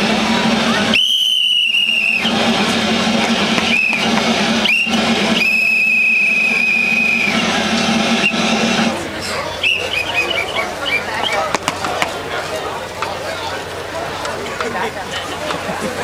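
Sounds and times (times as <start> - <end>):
whistle blasts: 0.8 - 2.6, 3.3 - 8.8, 9.4 - 11.5.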